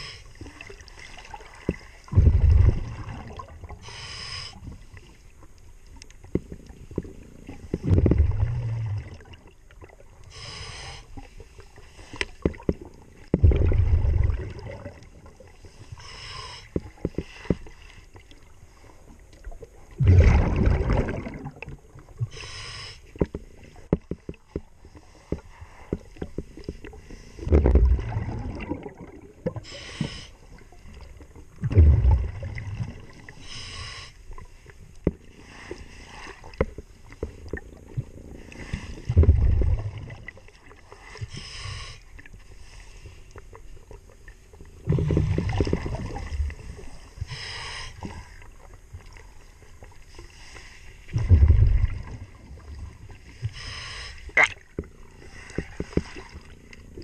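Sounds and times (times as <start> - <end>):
rushing exhaled bubbles: 0.6 - 3.8, 7.8 - 10.0, 13.4 - 15.4, 20.0 - 21.9, 27.4 - 29.8, 31.6 - 33.3, 44.8 - 47.0, 51.1 - 53.0
regulator hissing inhale: 3.8 - 4.7, 10.3 - 11.3, 15.8 - 18.1, 22.3 - 23.2, 29.6 - 30.5, 33.3 - 34.3, 41.0 - 43.3, 47.1 - 48.5, 53.4 - 54.4.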